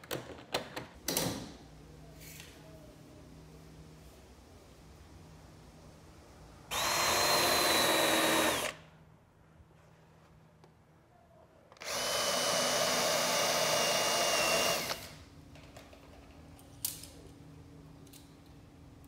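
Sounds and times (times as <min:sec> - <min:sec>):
cordless drill whining: 0:06.7 - 0:08.8, 0:11.8 - 0:15.2.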